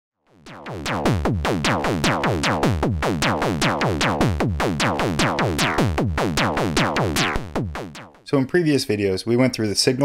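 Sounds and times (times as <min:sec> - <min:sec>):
synth percussion hits: 0:00.3 - 0:08.3.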